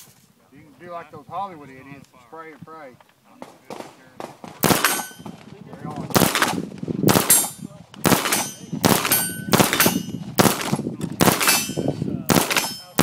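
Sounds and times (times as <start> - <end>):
submachine gun firing bursts: 4.2 - 5.1, 6.1 - 11.7, 12.3 - 13.0.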